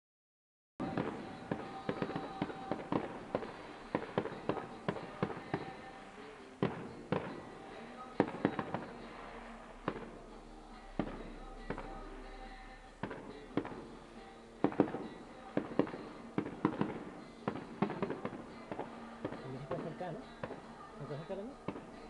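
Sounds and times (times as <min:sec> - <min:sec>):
distant fireworks bangs and crackles: 0:00.8 - 0:10.3, 0:11.0 - 0:12.0, 0:13.0 - 0:13.9, 0:14.6 - 0:20.7.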